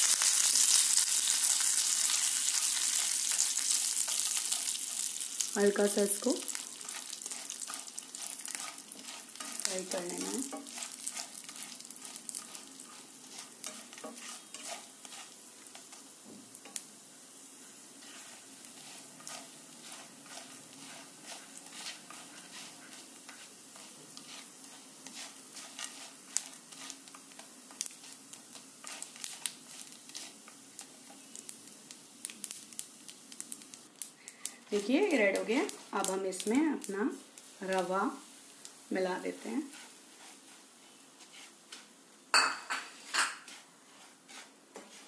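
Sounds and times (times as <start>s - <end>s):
lentils sizzling in oil: 0.0s - 45.0s
spatula clicking and scraping: 1.5s - 16.9s, 18.0s - 32.6s, 39.7s - 40.6s, 43.0s - 45.0s.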